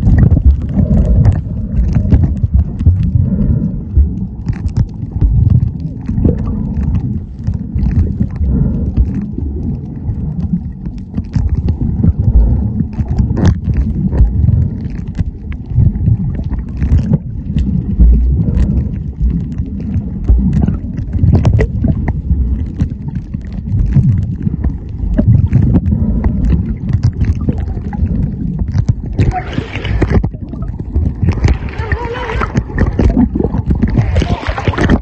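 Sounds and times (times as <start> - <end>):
clicks and crackles: 0.0 - 35.0
underwater rumbling and gurgling: 0.0 - 35.0
water hissing and splashing: 24.2 - 35.0.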